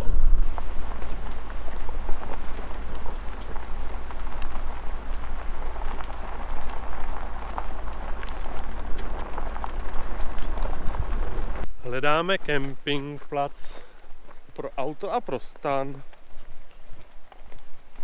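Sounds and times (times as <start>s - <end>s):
engine rumble: 0.0s - 18.0s
tyres crunching on gravel: 0.0s - 18.0s.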